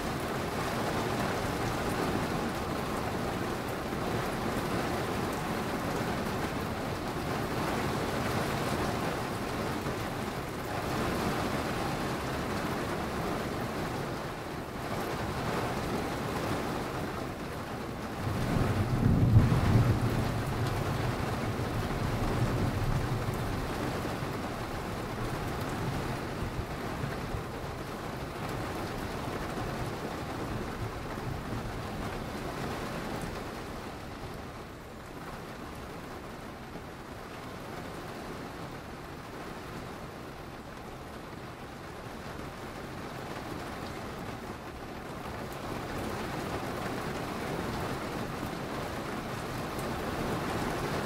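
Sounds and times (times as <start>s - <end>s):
steady rain falling: 0.0s - 51.0s
thunder rumbling: 18.2s - 34.3s.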